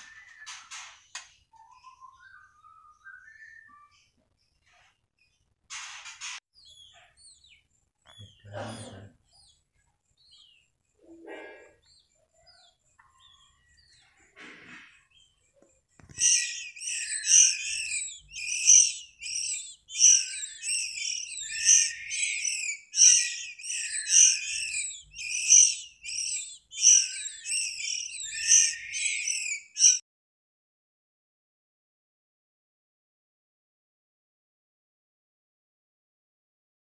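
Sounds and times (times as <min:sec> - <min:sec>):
bird chirping: 0:00.0 - 0:30.0.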